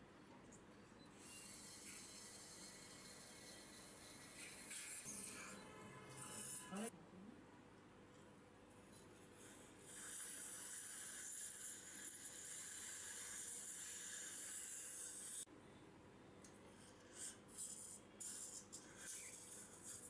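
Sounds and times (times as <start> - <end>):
dental suction hissing: 1.2 - 5.5, 9.4 - 15.5, 17.0 - 20.0.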